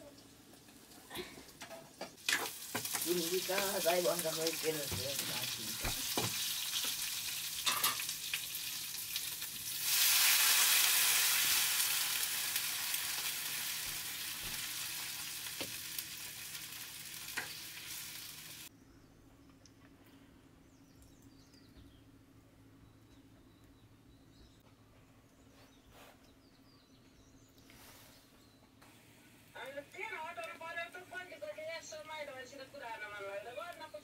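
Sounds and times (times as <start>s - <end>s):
food sizzling in hot oil: 0.0s - 18.7s.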